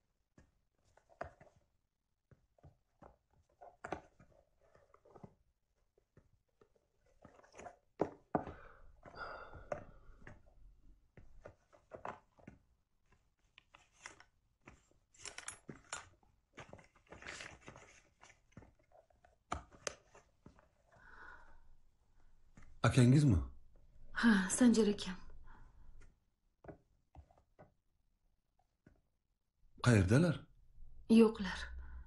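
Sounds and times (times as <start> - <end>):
objects handled on a table: 0.3 - 21.0.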